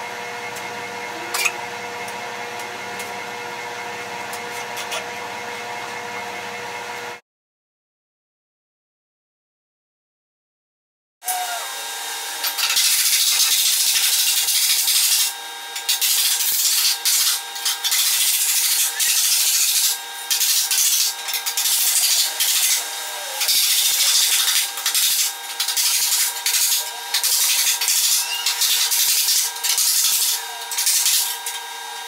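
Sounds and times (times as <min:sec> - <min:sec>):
steady hum: 0:11.4 - 0:32.0
hand tool scraping metal sheet: 0:12.4 - 0:31.6.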